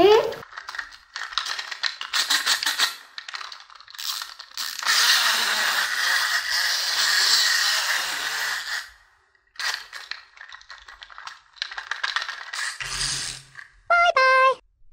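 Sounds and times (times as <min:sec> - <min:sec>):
toy spring motor buzzing whir: 0:01.7 - 0:10.2, 0:12.2 - 0:13.6.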